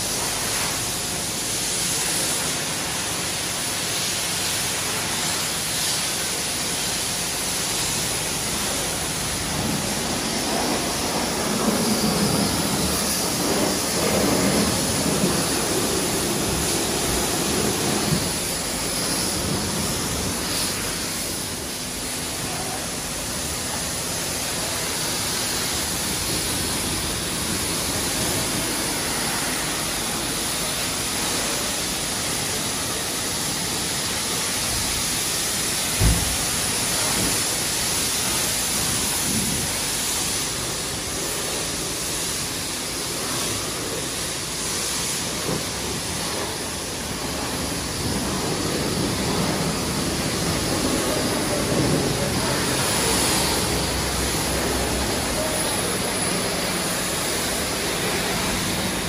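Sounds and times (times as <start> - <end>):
pressure washer spraying water: 0.0 - 59.0
short thump: 36.0 - 36.4.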